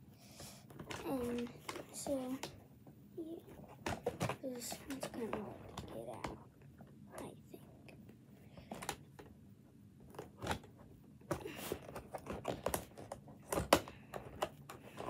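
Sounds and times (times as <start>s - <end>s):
packaging clicks and taps: 0.6s - 2.6s, 10.1s - 15.0s.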